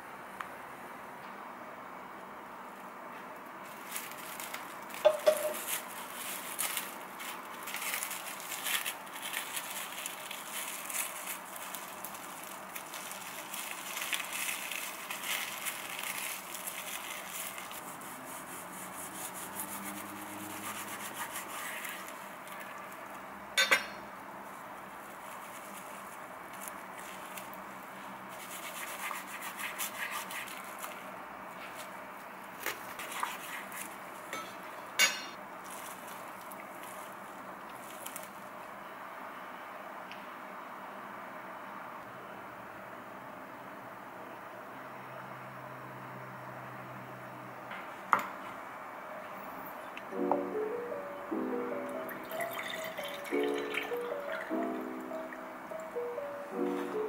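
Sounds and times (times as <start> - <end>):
cling film crinkling: 3.6 - 23.3, 24.4 - 34.3, 35.6 - 38.7.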